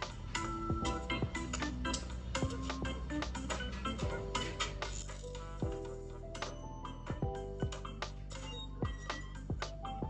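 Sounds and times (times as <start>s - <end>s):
crisp clicking percussion: 0.0s - 6.6s
background music with light beat: 0.0s - 10.0s.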